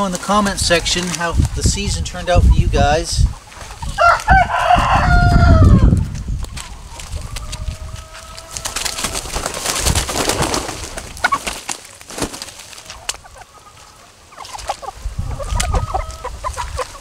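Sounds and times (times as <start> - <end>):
chickens clucking: 0.0 - 17.0
footsteps crunching dry leaves: 3.5 - 17.0.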